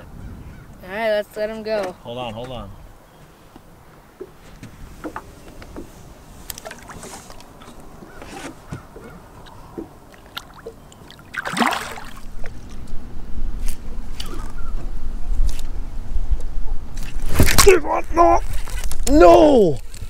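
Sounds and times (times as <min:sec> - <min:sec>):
wind rumble on microphone: 0:00.0 - 0:00.9, 0:12.2 - 0:20.0
water lapping against boat: 0:04.2 - 0:12.8
short splash of fish: 0:11.3 - 0:12.2.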